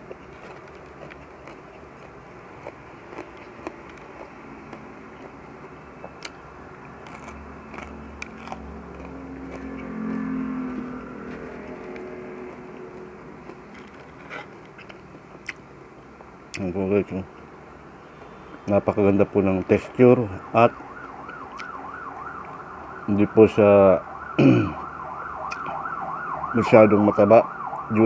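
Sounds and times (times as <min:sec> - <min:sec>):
crunchy chewing: 0:00.0 - 0:20.0, 0:20.7 - 0:23.0
low hum: 0:04.8 - 0:15.0.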